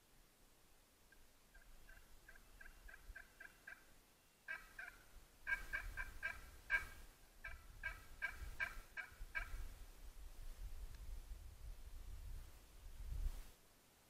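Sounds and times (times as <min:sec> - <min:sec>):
turkey yelping: 0:01.5 - 0:03.9, 0:04.5 - 0:09.6.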